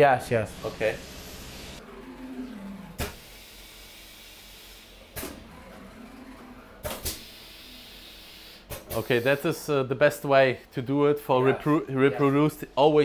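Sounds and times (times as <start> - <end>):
factory machinery hiss: 7.0 - 9.6.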